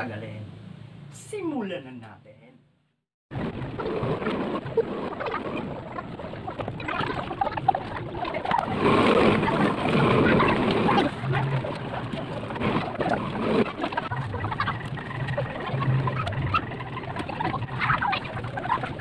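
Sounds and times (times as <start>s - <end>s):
animal calls: 6.8s - 19.0s.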